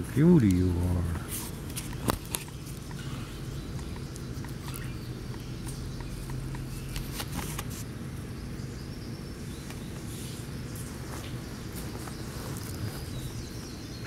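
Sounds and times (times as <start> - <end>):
steady low hum: 0.0 - 14.0
puppies rustling on grass: 10.1 - 13.8.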